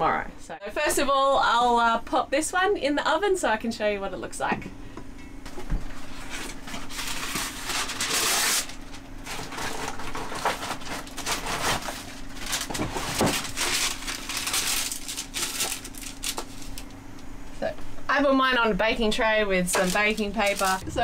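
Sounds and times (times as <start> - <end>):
low hum: 0.0 - 21.0
baking paper rustling: 5.9 - 16.9, 19.6 - 20.8.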